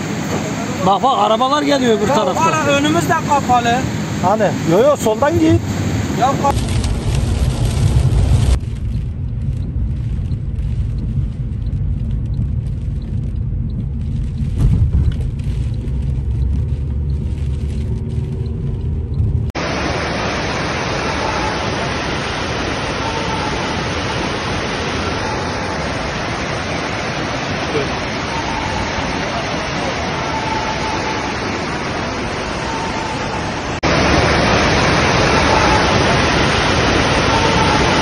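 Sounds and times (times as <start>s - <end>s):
rushing floodwater hiss: 0.0s - 8.6s, 19.6s - 38.0s
car driving in heavy rain: 0.0s - 38.0s.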